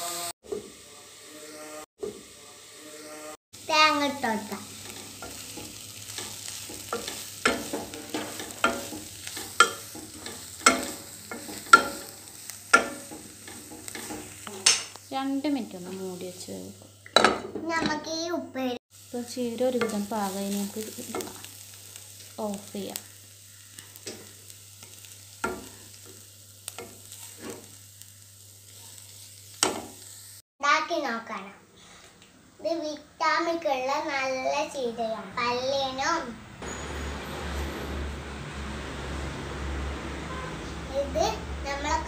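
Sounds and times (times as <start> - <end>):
faint sizzle: 0.0 - 42.0
spatula stirring in frying pan: 3.6 - 17.8, 18.9 - 30.4
spatula clanking against pan: 4.8 - 15.0, 17.1 - 18.0, 25.4 - 25.7
faint hiss: 18.6 - 30.4.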